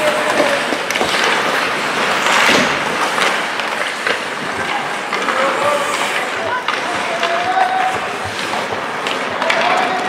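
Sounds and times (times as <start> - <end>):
arena noise: 0.0 - 10.0
hockey sticks and puck clacking: 0.0 - 10.0
skate blades scraping ice: 0.0 - 10.0.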